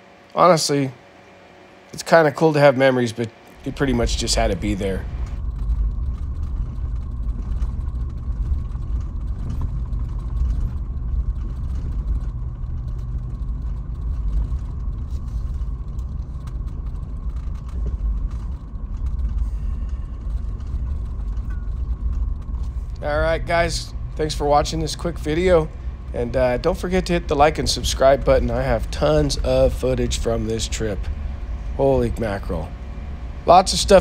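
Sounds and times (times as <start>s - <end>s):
engine and tyres rumbling: 3.4s - 34.0s
rattles and knocks: 3.6s - 34.0s.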